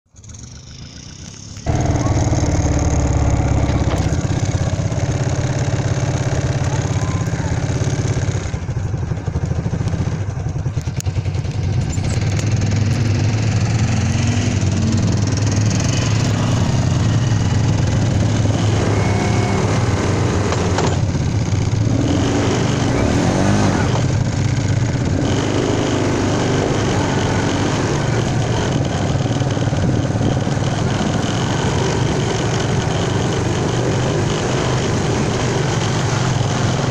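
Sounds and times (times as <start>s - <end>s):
quad bike engine droning: 0.1s - 36.9s.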